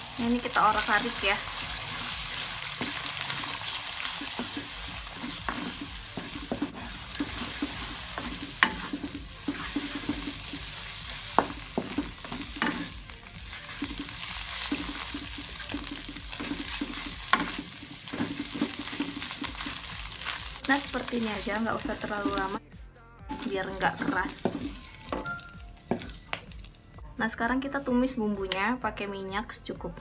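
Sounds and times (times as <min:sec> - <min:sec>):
eggs sizzling in a pan: 0:00.0 - 0:22.6, 0:23.3 - 0:26.8
spatula scraping and stirring: 0:00.8 - 0:22.6, 0:23.3 - 0:26.3.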